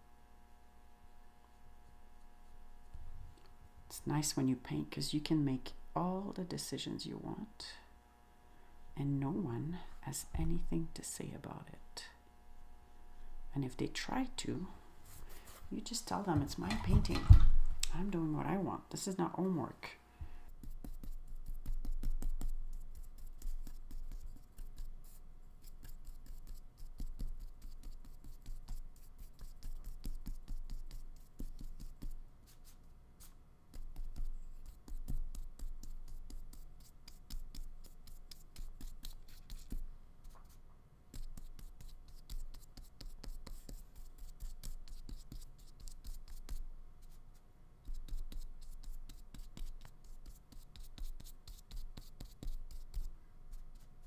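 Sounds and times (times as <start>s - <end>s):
paintbrush strokes on paper: 14.1s - 17.1s, 20.5s - 54.0s.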